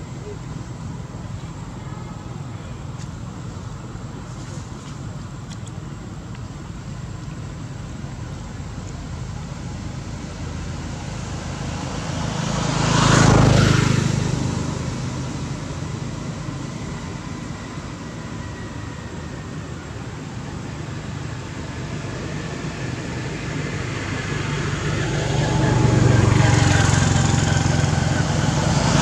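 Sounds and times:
vehicle passing by: 0:10.4 - 0:17.7, 0:21.4 - 0:29.0.

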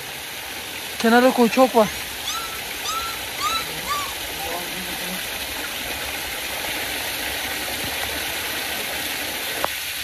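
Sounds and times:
stream of running water: 0:00.0 - 0:10.0.

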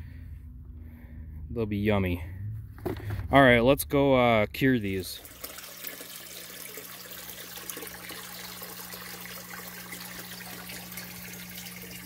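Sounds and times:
low electric hum: 0:00.0 - 0:12.0
water trickling into a tank: 0:04.8 - 0:12.0.

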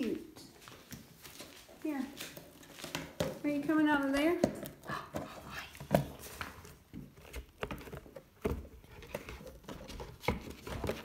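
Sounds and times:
kittens scratching on cardboard: 0:04.8 - 0:11.0.

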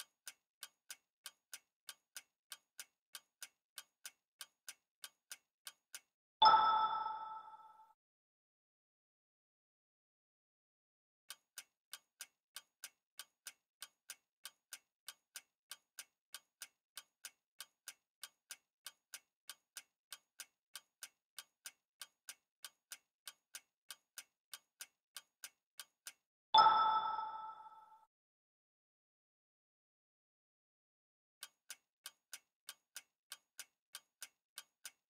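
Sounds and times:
clock ticking: 0:00.0 - 0:07.8, 0:11.3 - 0:27.9, 0:31.4 - 0:35.0
bright chime: 0:06.4 - 0:07.8, 0:26.6 - 0:28.0.

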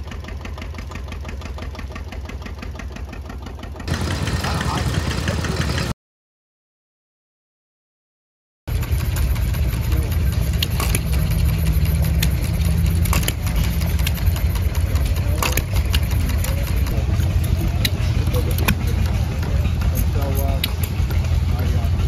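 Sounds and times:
small gas engine running: 0:00.0 - 0:06.0, 0:08.7 - 0:22.0
sharp clicks: 0:10.4 - 0:21.3.

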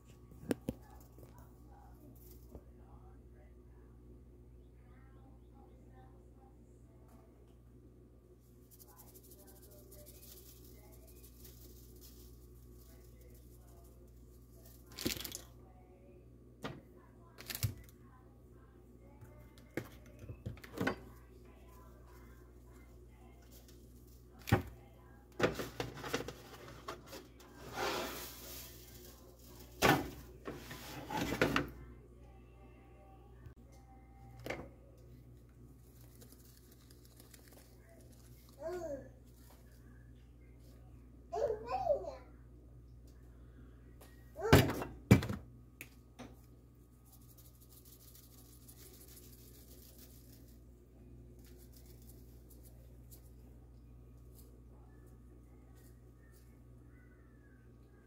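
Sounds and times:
rubbing seasoning on ribs: 0:08.4 - 0:14.9, 0:27.4 - 0:29.8, 0:35.8 - 0:38.6, 0:47.0 - 0:50.8, 0:51.4 - 0:53.4.

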